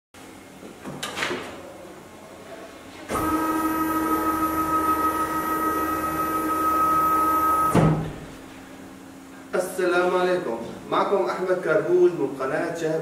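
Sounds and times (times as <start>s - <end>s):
cnc router hum and whine: 3.1s - 8.4s.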